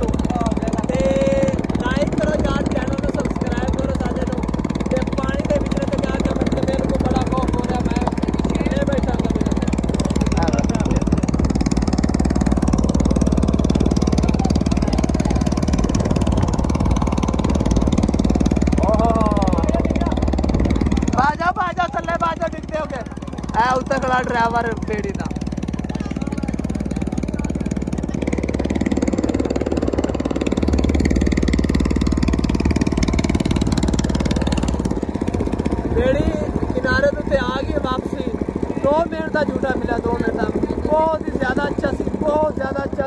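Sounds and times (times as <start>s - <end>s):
boat engine pulsing: 0.0s - 43.0s.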